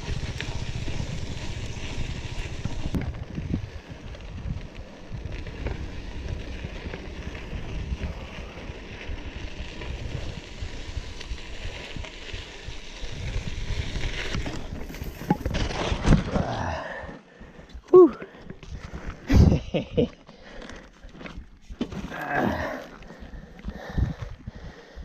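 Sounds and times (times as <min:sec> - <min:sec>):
wind buffeting microphone: 0:00.0 - 0:14.5
bike rattling over bumps: 0:00.0 - 0:17.7
bike tyres crunching on gravel: 0:00.0 - 0:24.8.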